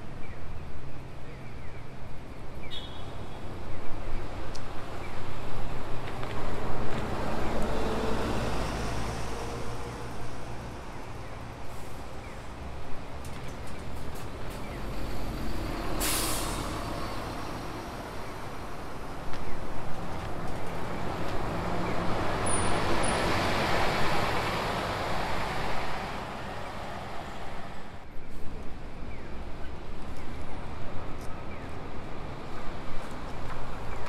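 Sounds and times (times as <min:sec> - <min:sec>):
bus driving past: 0:06.0 - 0:34.0
air brakes hissing: 0:15.9 - 0:16.8.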